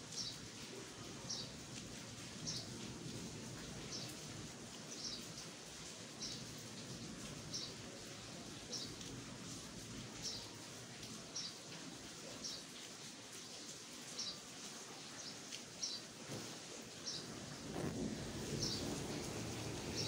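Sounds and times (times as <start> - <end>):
bird chirping: 17.1 - 19.0
low outdoor hum: 17.2 - 20.0.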